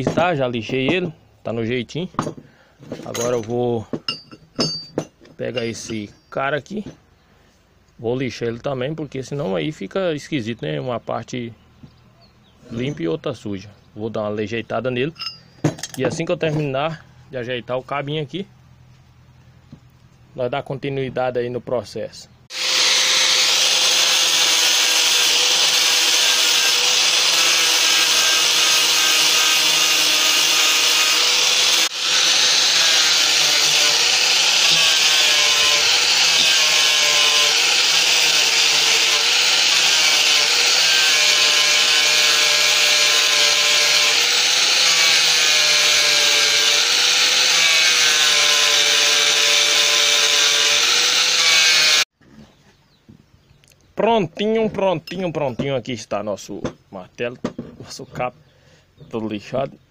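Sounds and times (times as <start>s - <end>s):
angle grinder whining on steel: 5.5s - 6.3s, 22.5s - 52.1s.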